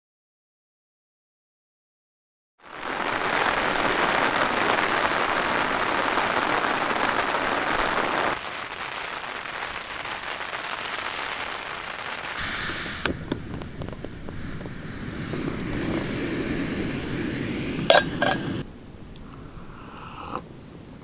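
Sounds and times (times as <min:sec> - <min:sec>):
rain on tent fabric: 0:02.6 - 0:16.0
heavy rain falling: 0:02.6 - 0:18.6.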